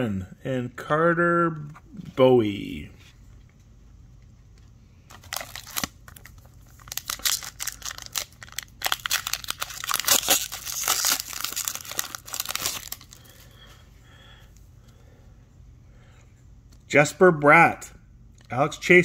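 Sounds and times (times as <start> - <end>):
foil wrapper tearing and crinkling: 5.1 - 13.3.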